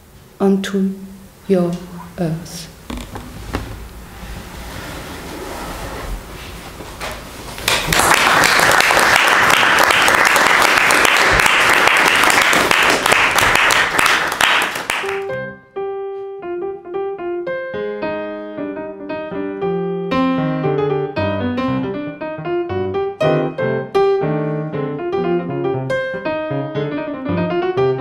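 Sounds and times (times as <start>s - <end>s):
audience clapping: 7.6s - 15.4s
piano music: 9.1s - 28.0s.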